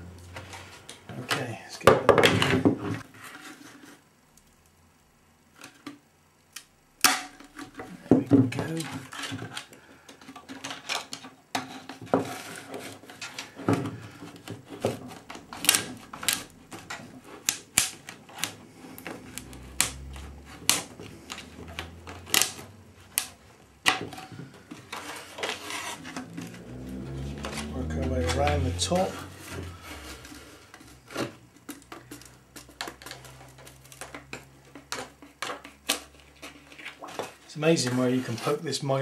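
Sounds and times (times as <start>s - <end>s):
scraping: 11.7s - 38.6s.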